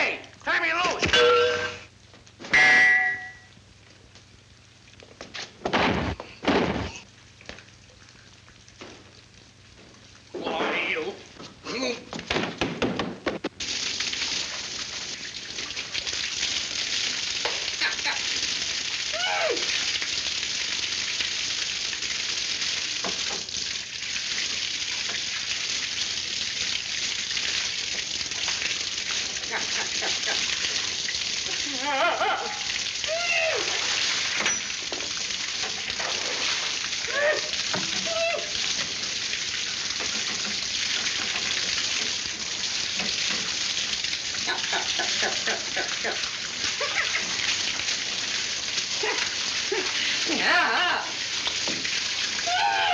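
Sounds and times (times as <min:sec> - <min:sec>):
water spraying from pipe: 0:13.4 - 0:52.9.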